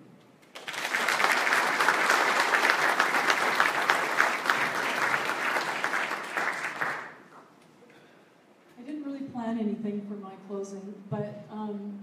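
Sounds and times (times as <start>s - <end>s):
audience applause: 0.5s - 7.2s.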